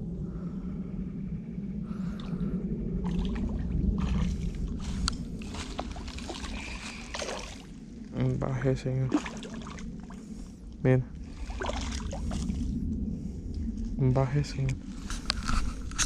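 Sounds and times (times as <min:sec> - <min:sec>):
steady low rumble: 0:00.0 - 0:16.0
fish splashing in water: 0:03.1 - 0:07.9, 0:09.1 - 0:10.2, 0:11.3 - 0:12.7.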